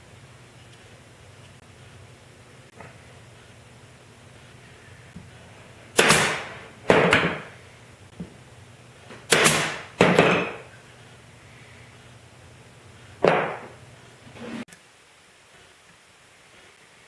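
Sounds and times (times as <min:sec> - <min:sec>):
pneumatic nailer firing: 0:05.9 - 0:07.5, 0:09.2 - 0:10.4.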